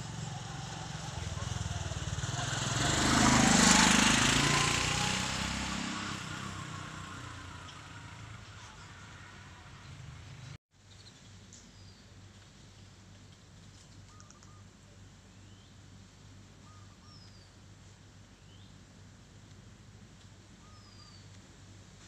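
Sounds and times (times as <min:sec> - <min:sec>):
bird chirps: 0:10.8 - 0:12.1, 0:14.1 - 0:14.7, 0:16.6 - 0:17.6, 0:20.6 - 0:21.3.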